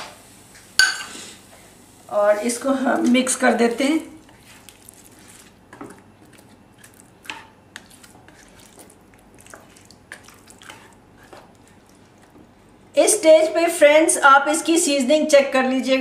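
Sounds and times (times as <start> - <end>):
thick gravy squelching: 2.5 - 12.6
spoon tapping and scraping pan: 7.2 - 8.4.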